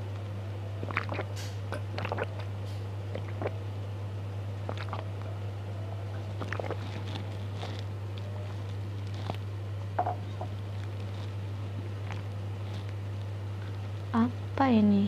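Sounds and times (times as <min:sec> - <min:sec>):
low electrical hum: 0:00.0 - 0:15.0
person gulping a drink: 0:00.8 - 0:03.6, 0:04.6 - 0:05.3, 0:06.1 - 0:13.0
wet swallowing and mouth clicks: 0:00.8 - 0:03.6, 0:04.6 - 0:05.3, 0:06.1 - 0:14.0.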